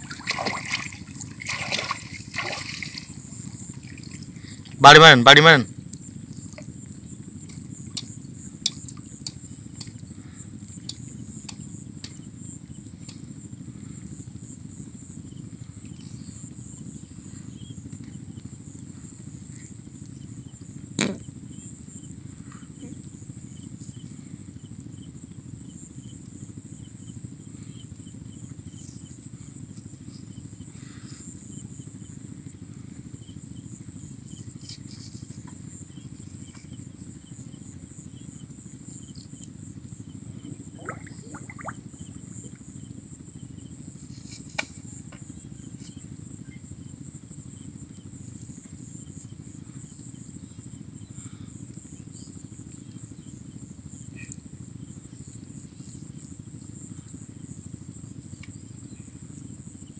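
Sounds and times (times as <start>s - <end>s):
low steady rumble: 0.0s - 47.6s
insects trilling: 0.0s - 59.9s.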